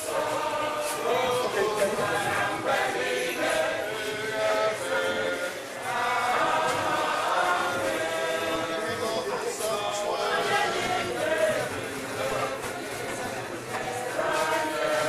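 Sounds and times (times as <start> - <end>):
many voices chanting: 0.0 - 15.0.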